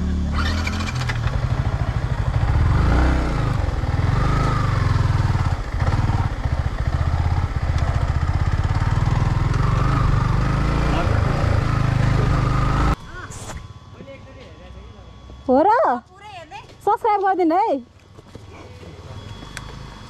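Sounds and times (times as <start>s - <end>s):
motorcycle engine running: 0.0s - 13.2s.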